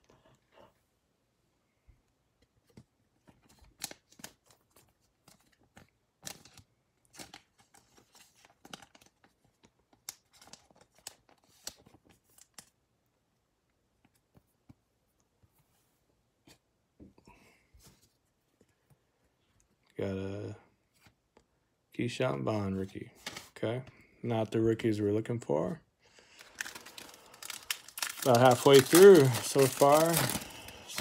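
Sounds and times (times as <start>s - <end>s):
plastic card sleeve crinkling: 3.3s - 12.8s, 26.2s - 31.0s.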